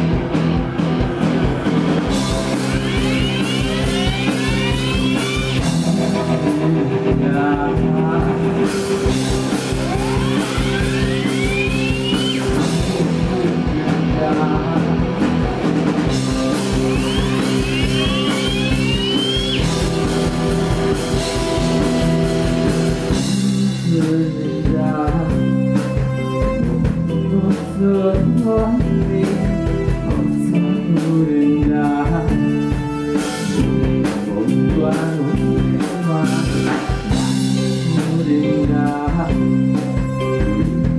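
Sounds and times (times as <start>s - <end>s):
live rock band playing: 0.0s - 40.9s
rising swooping tones: 8.7s - 13.2s, 15.9s - 22.9s.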